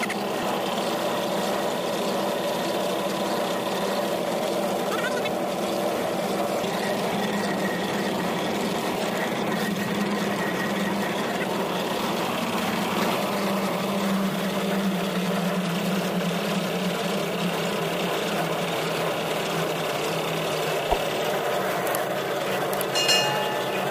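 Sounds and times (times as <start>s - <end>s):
concrete mixer drone: 0.0s - 23.9s.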